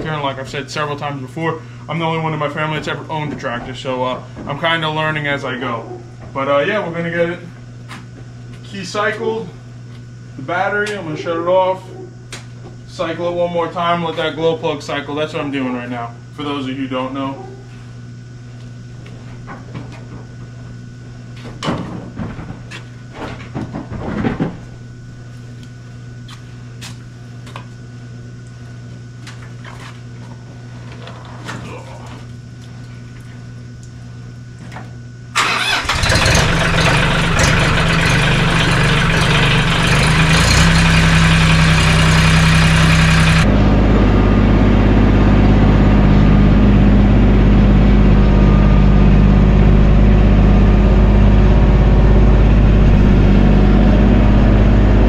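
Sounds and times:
tractor diesel engine starting: 35.4 - 55.0.

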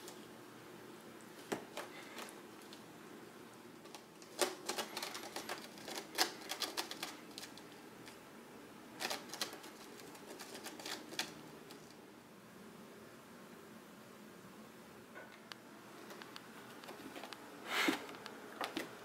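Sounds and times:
cat claws scratching rope post: 3.8 - 7.6, 9.0 - 11.9.

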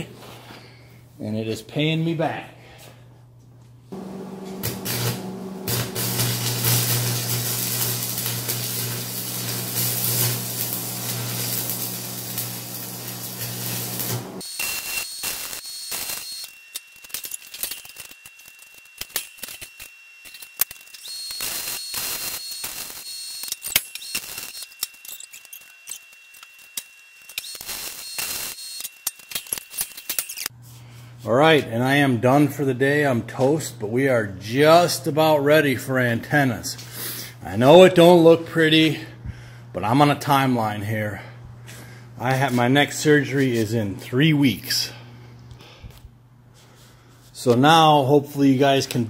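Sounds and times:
welding arc crackling: 4.0 - 30.5.

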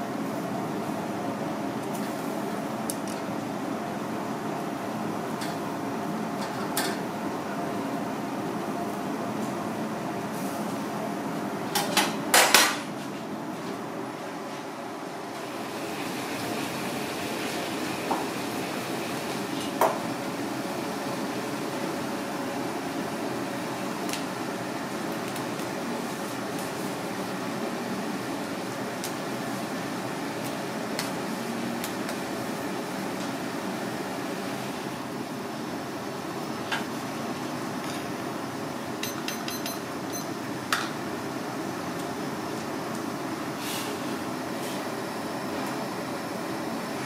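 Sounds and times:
gas burners and ventilation rushing: 0.0 - 47.0
kitchen background noise: 36.4 - 41.2.

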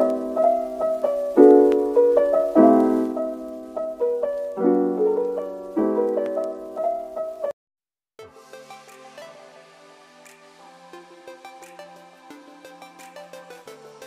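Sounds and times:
piano chords and melody: 0.0 - 7.6.

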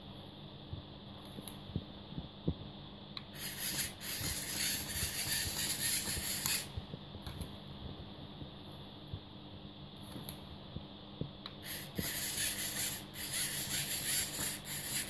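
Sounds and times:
small electric motor whirring: 3.4 - 6.7, 11.6 - 15.0.

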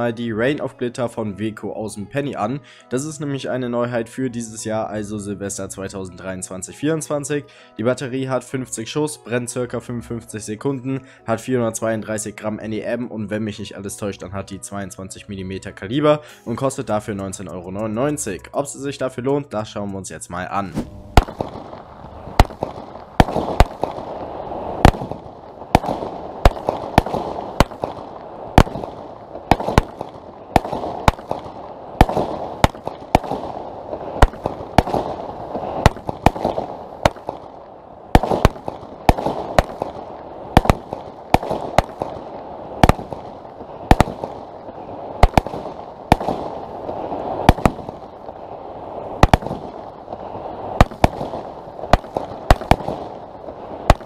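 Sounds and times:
firework hiss: 20.7 - 37.4
firework bangs: 20.7 - 54.0.

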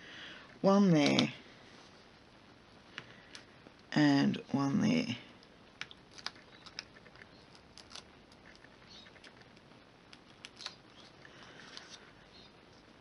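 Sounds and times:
paper clicks and crinkles: 6.1 - 12.1.

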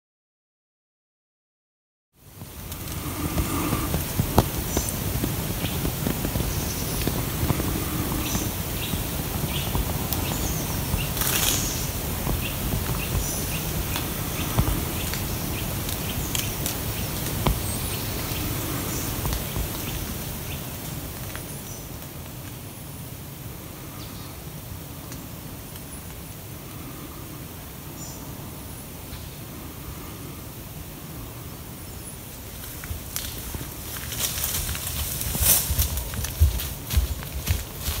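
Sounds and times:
wind rumble: 2.2 - 38.0
microphone handling noise: 2.3 - 20.2
small birds chirping: 2.6 - 22.0.

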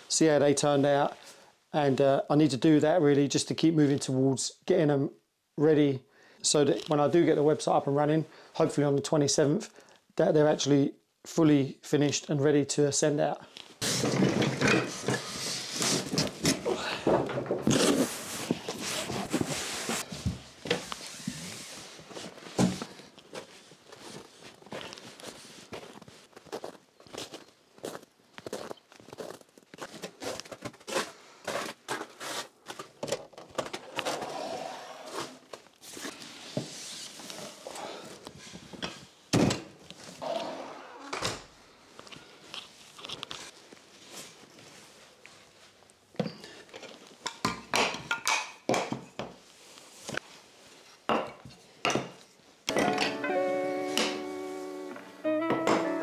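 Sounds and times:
cardboard scraping and rustling: 13.8 - 16.8, 17.4 - 23.0
footsteps on concrete floor: 22.1 - 32.9
rubber boot footsteps in snow: 23.3 - 32.5.

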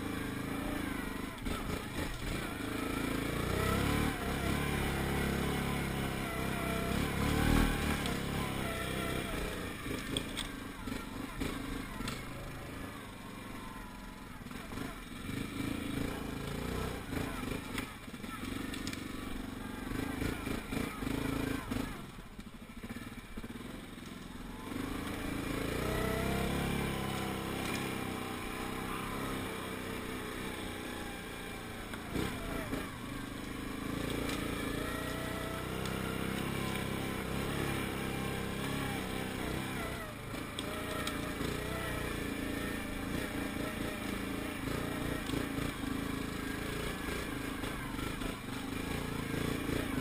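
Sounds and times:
quad bike engine revving: 0.0 - 50.0.

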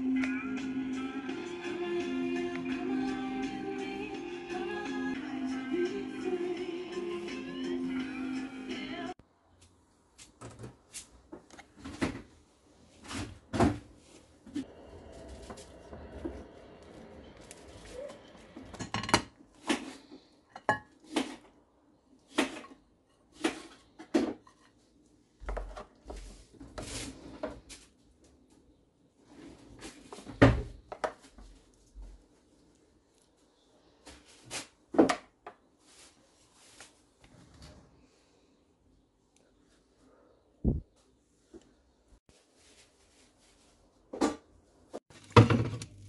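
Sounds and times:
dishes and utensils clattering: 18.0 - 21.4.

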